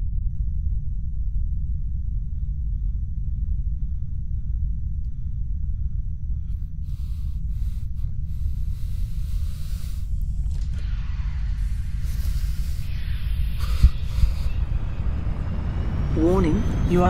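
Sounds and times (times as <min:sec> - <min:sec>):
deep engine rumble: 0:00.0 - 0:17.0
bursts of hissing noise: 0:06.9 - 0:10.2, 0:10.8 - 0:14.6.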